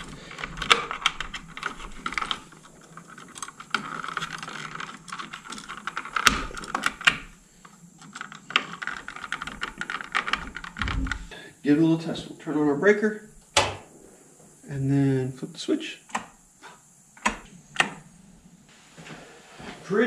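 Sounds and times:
plastic and metal clicks and scraping: 0.0 - 11.3
sharp clicks: 16.1 - 18.0.

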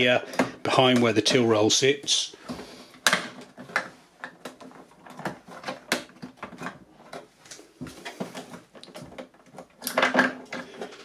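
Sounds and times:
plastic clicks and knocks: 2.5 - 11.0.

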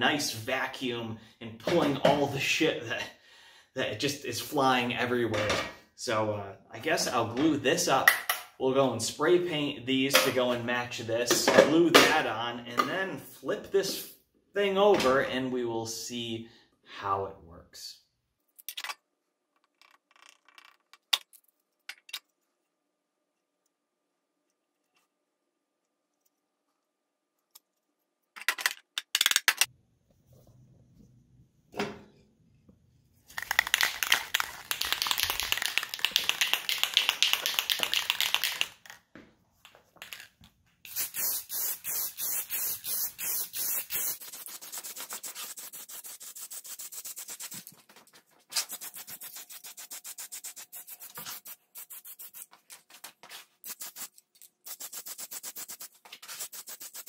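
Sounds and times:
spray can clicks: 33.4 - 38.8
spray paint can hissing: 33.4 - 38.8, 40.9 - 47.7, 48.5 - 52.6, 53.6 - 57.0.

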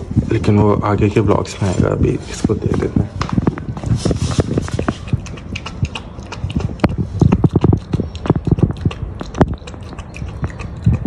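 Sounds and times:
puppy lapping food: 3.4 - 11.0.

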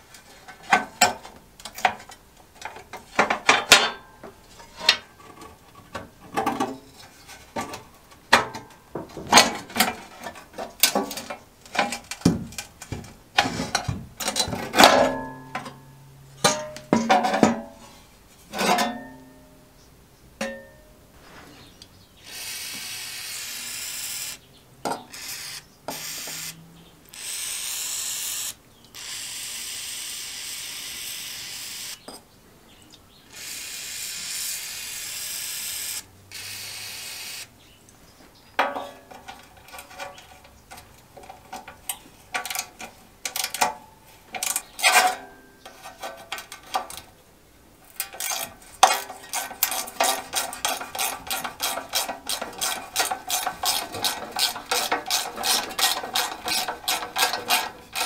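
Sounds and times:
metal parts clinking: 47.9 - 58.0.

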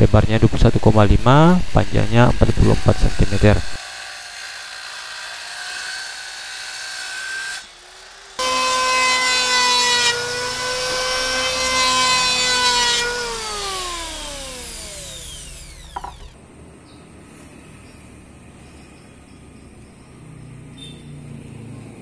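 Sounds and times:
circular saw running: 0.0 - 16.4
electric planer shaving wood: 0.8 - 16.4
light knock: 16.0 - 16.2.

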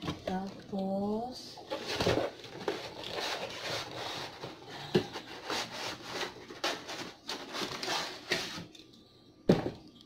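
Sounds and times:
cardboard rubbing and scraping: 1.7 - 4.6, 5.2 - 8.7.

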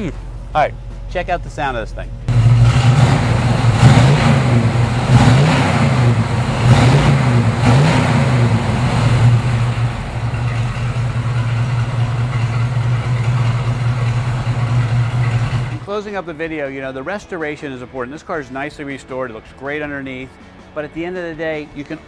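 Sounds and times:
car engine revving and idling: 2.2 - 15.8.

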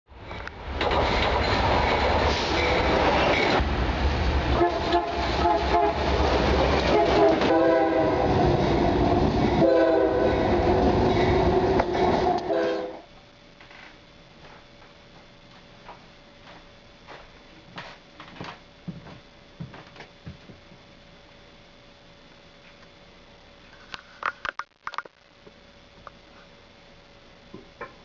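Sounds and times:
wheels clattering on rail: 0.4 - 3.8
diesel locomotive rumbling past: 0.6 - 13.0
train air horn blasts: 4.5 - 10.7, 11.6 - 13.1.

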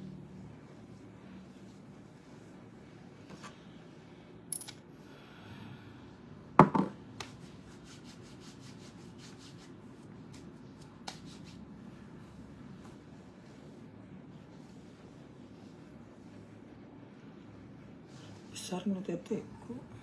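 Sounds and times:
hands rubbing together: 7.1 - 18.5.

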